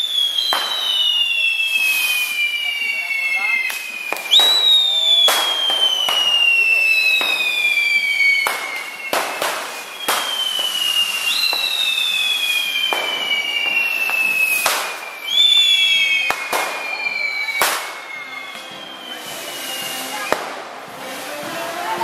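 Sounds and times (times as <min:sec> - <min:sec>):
firework bangs: 0:00.0 - 0:22.0
firework fountains whistling: 0:00.0 - 0:22.0.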